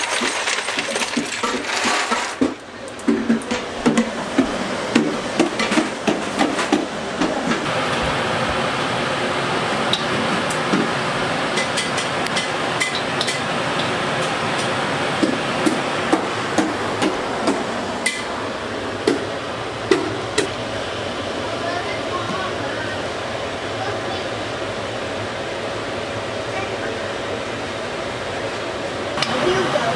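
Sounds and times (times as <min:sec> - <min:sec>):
metal pots clinking and knocking: 0:00.0 - 0:07.7, 0:11.5 - 0:15.8.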